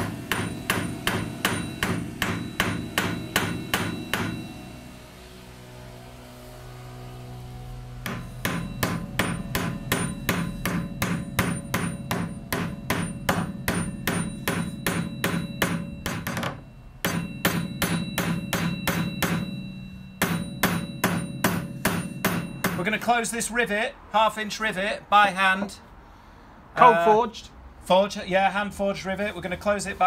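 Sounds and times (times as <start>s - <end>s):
hammer striking metal rivet: 0.0s - 4.6s, 8.0s - 23.0s.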